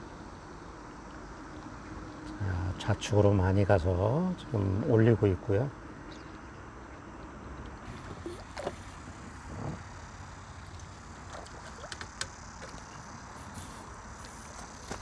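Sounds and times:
water splashing: 0:10.6 - 0:13.6.

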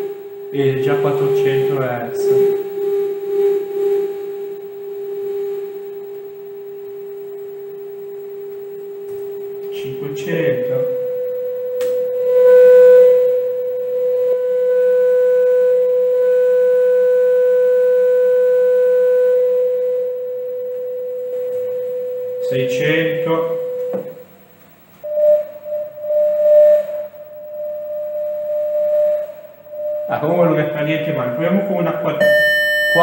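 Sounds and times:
sine-wave test tone: 0:00.0 - 0:33.0
small click: 0:11.8 - 0:12.1.

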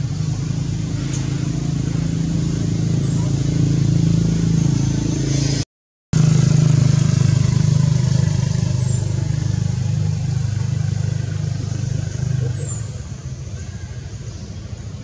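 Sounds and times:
engine running with pulsing hum: 0:00.0 - 0:05.6, 0:06.2 - 0:15.0.

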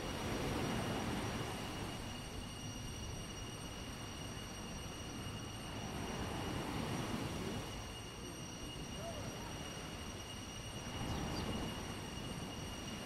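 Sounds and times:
small waves rumbling: 0:00.0 - 0:02.7.

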